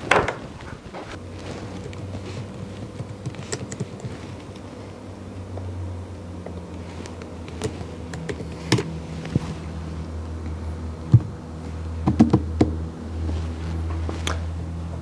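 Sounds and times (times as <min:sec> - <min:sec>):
low hum: 0:00.0 - 0:15.0
calculator keys clicking: 0:01.7 - 0:04.7, 0:07.1 - 0:08.9.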